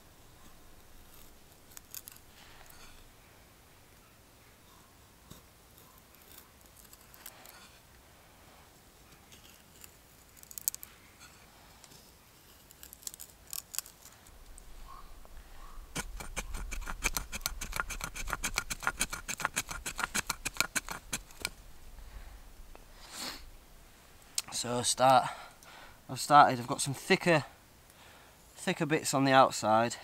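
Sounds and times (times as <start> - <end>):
knife shaving wooden stick: 0.3 - 3.1, 5.3 - 7.8, 9.2 - 14.6, 15.2 - 21.6.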